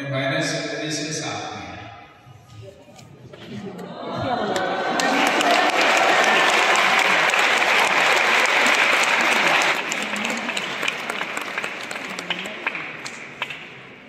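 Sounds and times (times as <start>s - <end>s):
audience applauding: 4.3s - 14.0s.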